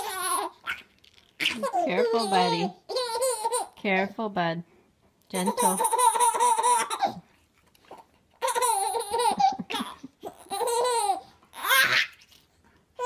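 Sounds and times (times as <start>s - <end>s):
baby laughing: 0.0s - 3.8s, 5.4s - 7.2s, 7.9s - 12.2s.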